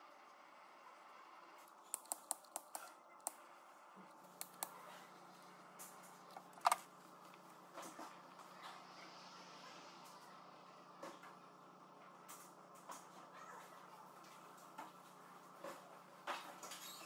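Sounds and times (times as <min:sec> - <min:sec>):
small clicks of wires and tool: 0:01.6 - 0:03.4.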